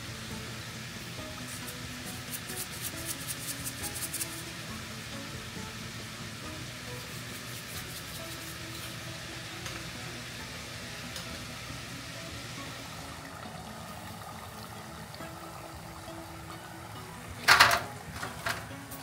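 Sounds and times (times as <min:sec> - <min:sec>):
soft background music: 0:00.0 - 0:19.0
spoon stirring liquid in glass bowl: 0:07.0 - 0:08.9.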